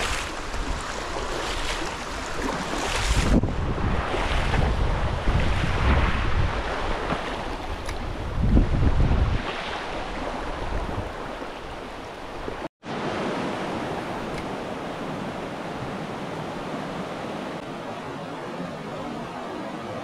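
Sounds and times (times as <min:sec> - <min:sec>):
river water rushing: 0:00.0 - 0:03.4, 0:09.4 - 0:20.0
wind rumble on microphone: 0:00.0 - 0:12.6.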